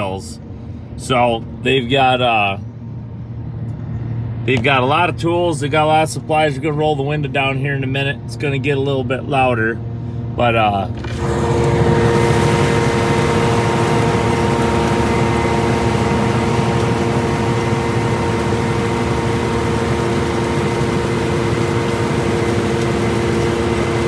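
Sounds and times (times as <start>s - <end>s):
harvester machine drone: 0.0s - 24.0s
whining machine tones: 11.0s - 24.0s.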